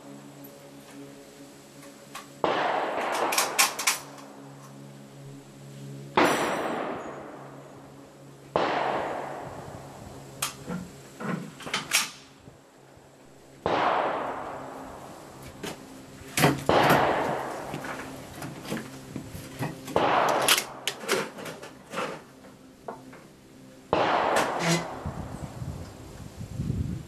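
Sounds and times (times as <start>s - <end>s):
gunshots with echo: 2.4s - 3.9s, 8.5s - 9.6s, 13.6s - 14.8s, 16.7s - 17.7s, 20.0s - 20.8s, 23.9s - 25.0s.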